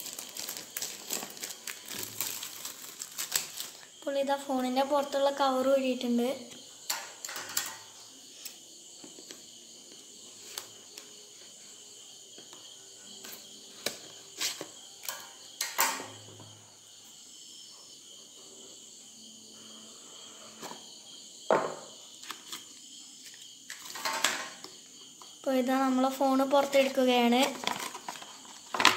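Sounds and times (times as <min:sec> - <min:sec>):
crickets chirring: 0:00.0 - 0:28.9.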